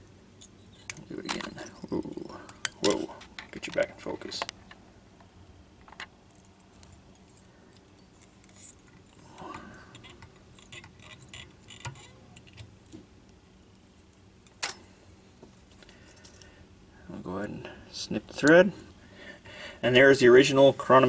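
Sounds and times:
small metallic clicks and ticks: 9.9 - 13.0.

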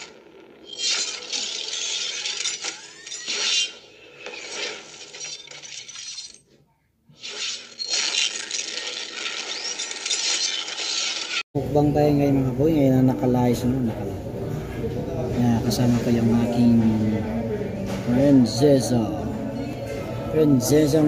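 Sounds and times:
glass shattering crash: 0.7 - 6.4, 7.2 - 11.4.

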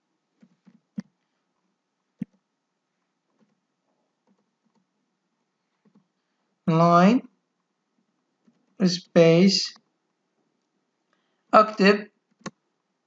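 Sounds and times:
computer mouse clicking: 4.2 - 4.9, 12.2 - 12.6.

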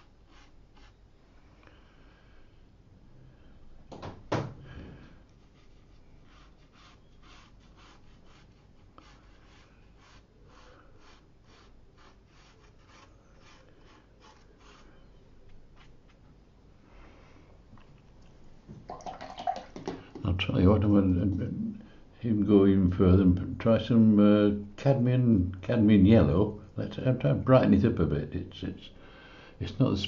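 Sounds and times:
brush strokes on paper: 0.0 - 1.0, 5.2 - 16.4.

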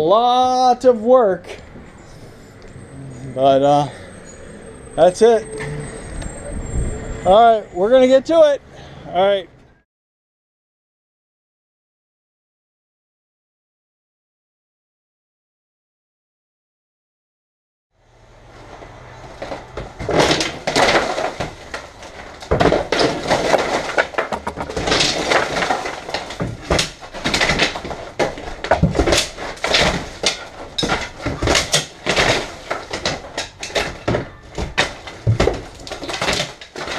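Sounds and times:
plaster and wood debris crashing: 19.3 - 36.9.

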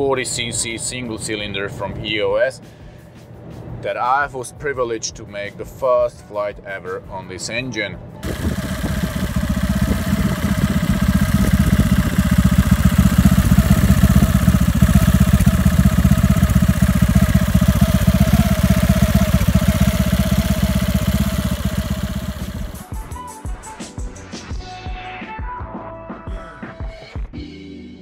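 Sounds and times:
paramotor engine running: 8.2 - 22.8.

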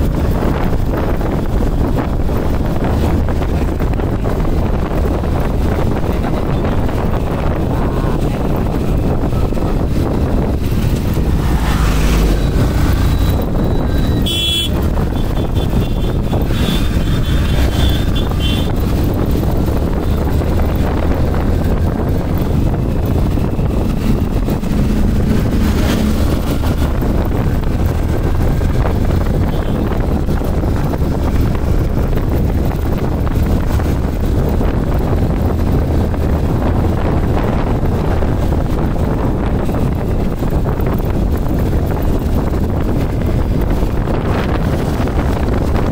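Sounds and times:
motorcycle engine and tyre noise: 0.0 - 45.9
wind buffeting microphone: 0.0 - 45.9
high horn toot: 12.3 - 18.8.

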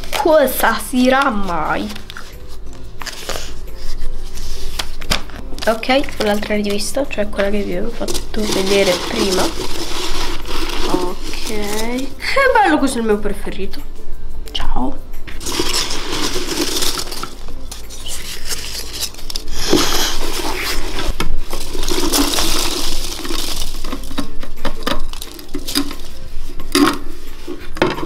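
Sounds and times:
pieces rattling out of a jar: 8.0 - 12.2, 15.4 - 27.1.

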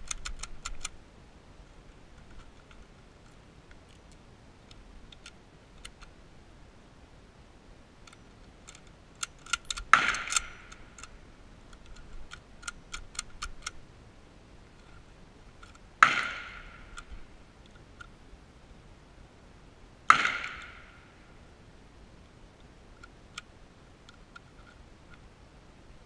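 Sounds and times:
rifle metal clicks and clacks: 0.0 - 1.0, 3.7 - 6.1, 8.0 - 13.8.

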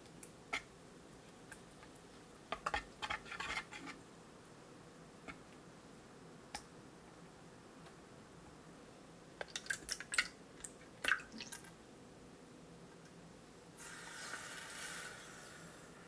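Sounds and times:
sugar pouring with a hiss: 13.8 - 16.0.

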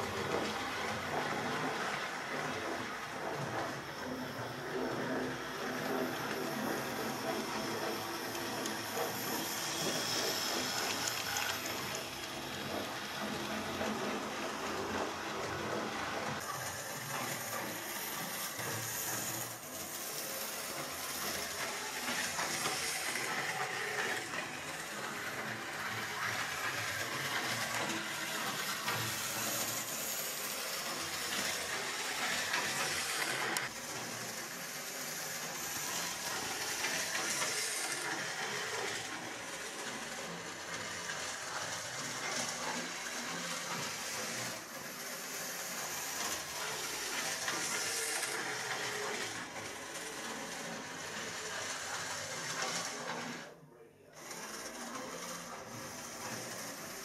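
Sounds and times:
model train motor whirring: 0.0 - 57.0
wheels on rails: 0.0 - 57.0.

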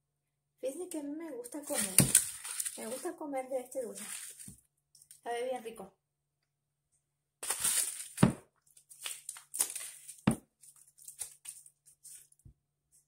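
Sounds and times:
dry corn husks crackling: 1.7 - 3.2, 3.8 - 4.6, 7.4 - 8.2, 8.8 - 11.7.

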